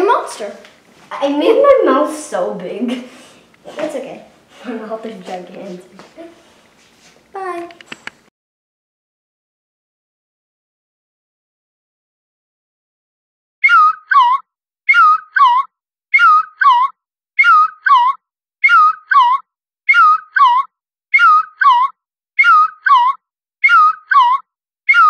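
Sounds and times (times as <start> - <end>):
high whistle-like call: 13.6 - 25.0.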